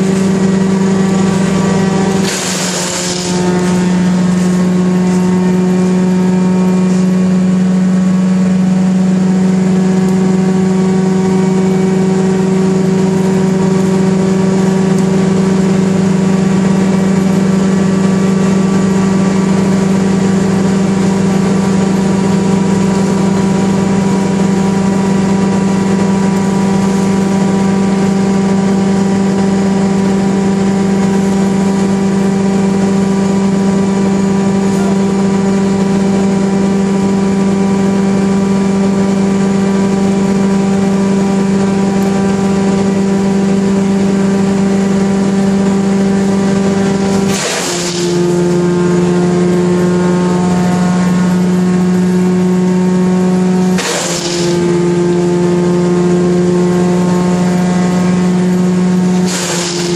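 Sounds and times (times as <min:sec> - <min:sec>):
wood chipper engine running: 0:00.0 - 0:59.9.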